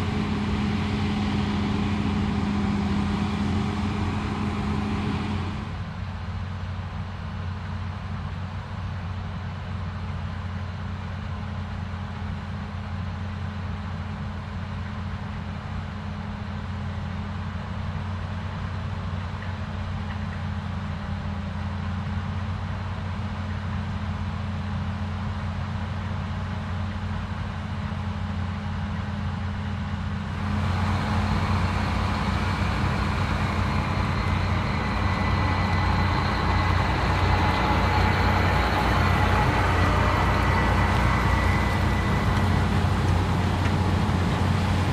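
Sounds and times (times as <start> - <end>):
combine harvester running: 0.0 - 44.9
thin high whine: 30.4 - 43.6.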